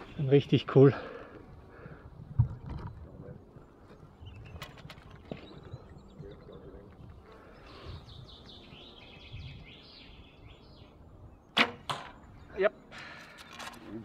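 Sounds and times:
arrow striking target: 11.5s - 12.2s.

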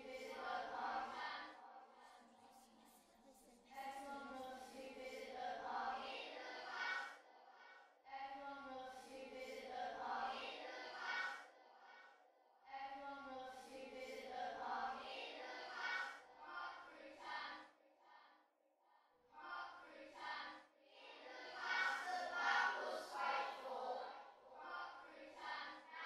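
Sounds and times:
children singing together: 0.0s - 2.1s, 4.4s - 7.8s, 9.2s - 12.0s, 13.8s - 18.2s, 19.4s - 26.0s.

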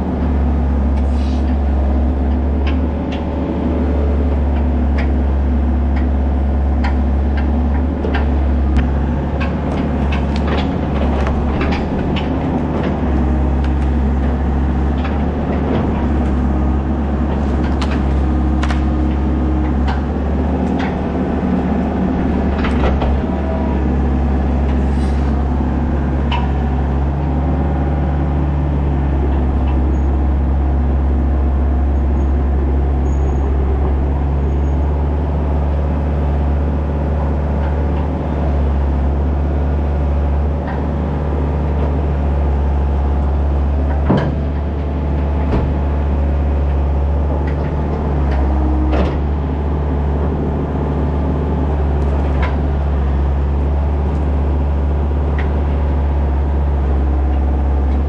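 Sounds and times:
excavator diesel engine running: 0.0s - 58.0s
clanks and knocks of logs: 4.5s - 27.2s, 43.3s - 49.3s, 52.0s - 54.4s.

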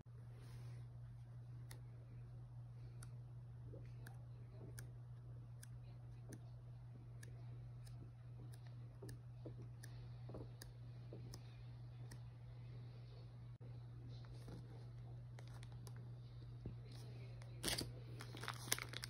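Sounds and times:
steady low hum: 0.0s - 19.0s
soft page rustles: 17.0s - 19.0s.

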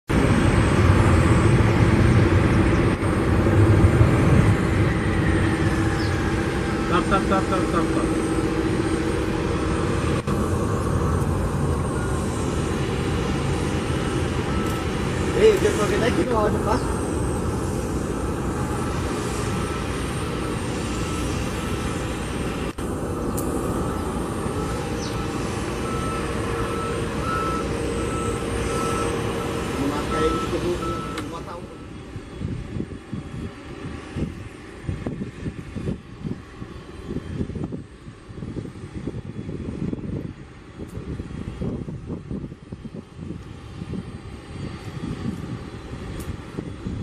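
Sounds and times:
jet airliner taxiing: 0.1s - 47.0s
jet engines roaring: 0.1s - 47.0s
faint high whine: 4.6s - 32.6s.

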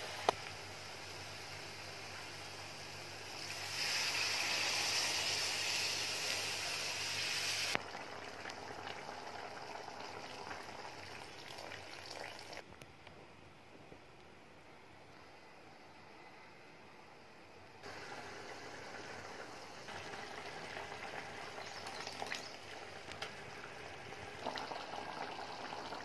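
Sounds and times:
water sizzling in hot pan: 0.0s - 12.6s, 17.8s - 26.0s.

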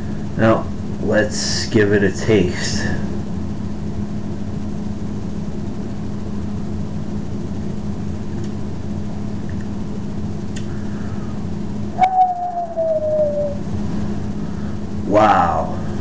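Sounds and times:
low machine hum: 0.0s - 16.0s
thin whine falling in pitch: 10.6s - 14.4s.

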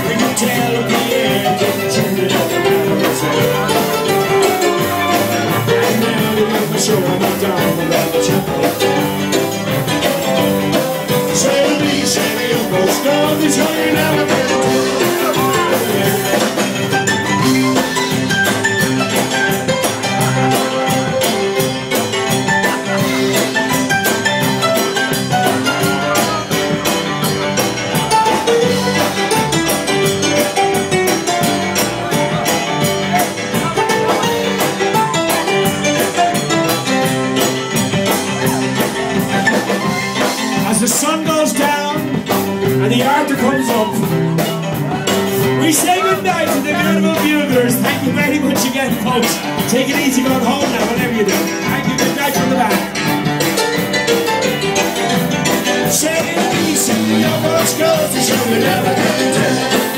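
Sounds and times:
drum kit beat: 0.0s - 59.9s
electric guitar: 0.0s - 59.9s
live band playing loud music: 0.0s - 59.9s.

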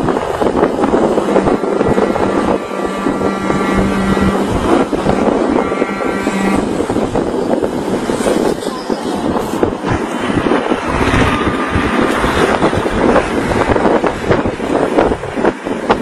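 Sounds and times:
steady low droning tone: 0.0s - 7.9s
vehicle road noise: 0.0s - 16.0s
wind buffeting the microphone: 0.0s - 16.0s.

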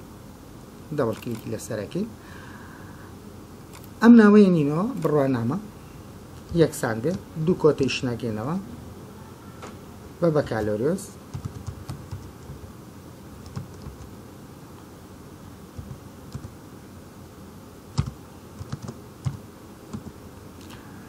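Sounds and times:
faint steady hiss: 0.0s - 21.0s
keyboard key clicks: 18.0s - 20.1s.

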